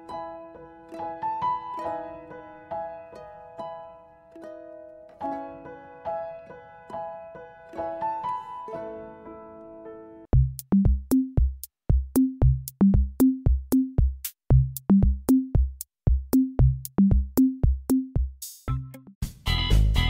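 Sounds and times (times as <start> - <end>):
piano phrase: 0.0 - 10.3
drum machine beat: 10.3 - 19.9.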